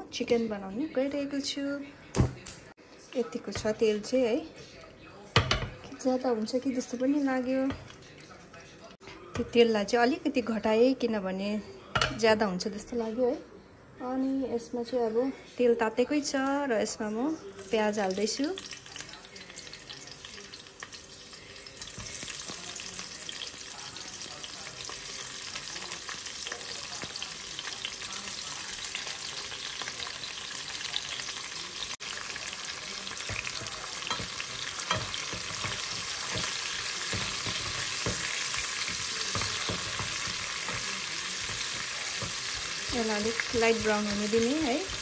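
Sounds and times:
onions sizzling in oil: 0:17.5 - 0:45.0.

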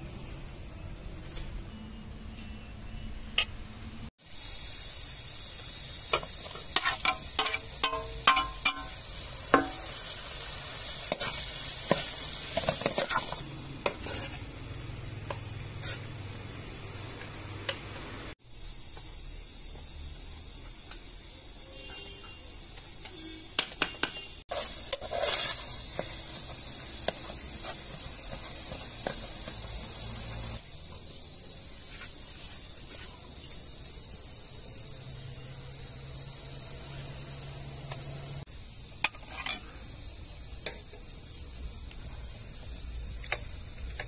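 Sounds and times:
tomatoes sizzling in hot oil: 0:04.2 - 0:18.9, 0:24.4 - 0:44.0
metal spoon scraping a pan: 0:06.1 - 0:14.5, 0:15.8 - 0:16.1, 0:24.5 - 0:29.9, 0:39.0 - 0:39.8.

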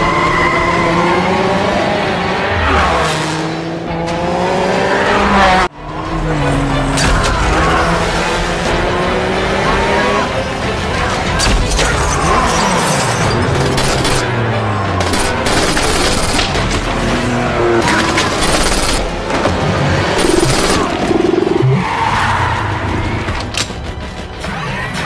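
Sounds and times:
action film music: 0:00.0 - 0:25.0
engine sound effects: 0:15.2 - 0:23.2.

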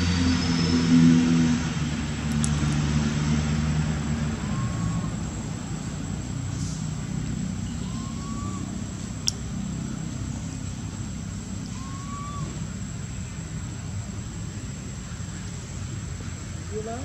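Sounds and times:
low background rumble: 0:01.1 - 0:17.0
short whistled call: 0:07.6 - 0:08.7, 0:11.7 - 0:12.6.

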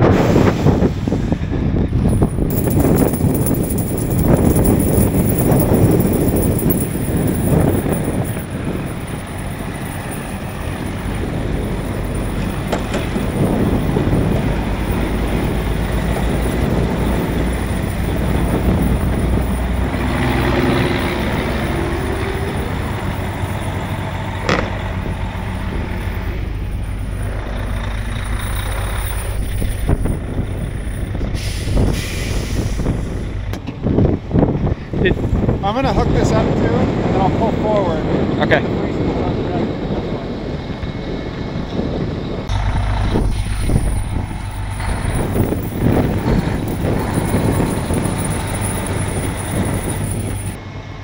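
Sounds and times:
diesel engine running: 0:00.0 - 0:51.0
air brakes hissing: 0:31.2 - 0:33.4, 0:43.1 - 0:44.7.

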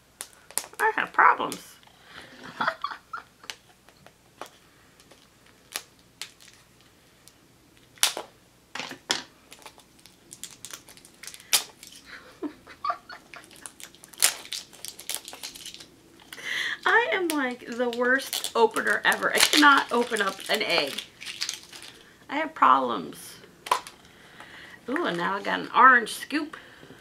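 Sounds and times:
plastic capsule clicks and snaps: 0:23.6 - 0:24.0.

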